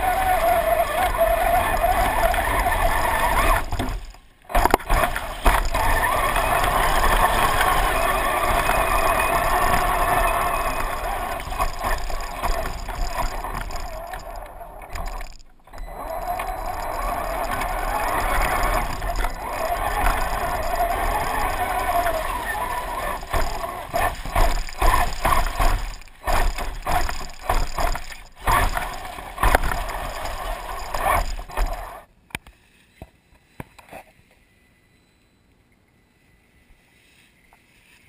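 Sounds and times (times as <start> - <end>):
electric motor whining: 0.0 - 32.0.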